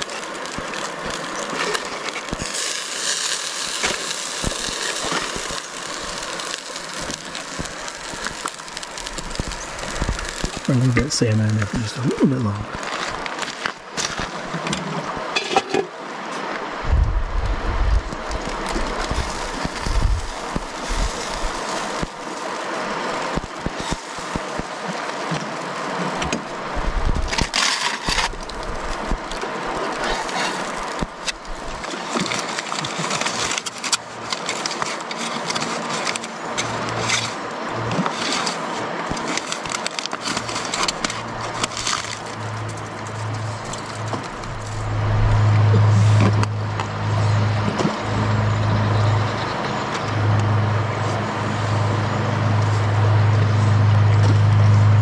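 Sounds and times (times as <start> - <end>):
wind rumbling on microphone: 6.9 - 15.4, 16.6 - 24.9, 25.9 - 31.9, 40.9 - 55.0.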